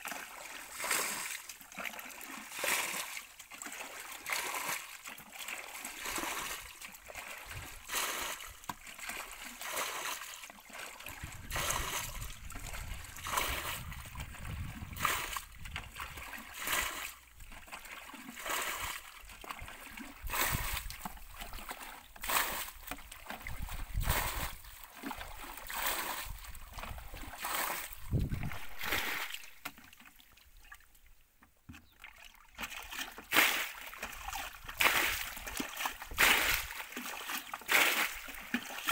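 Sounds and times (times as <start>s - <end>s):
water splashing: 0.0s - 31.0s, 31.8s - 38.9s
hands digging in wet mud: 0.6s - 29.7s, 32.6s - 38.9s.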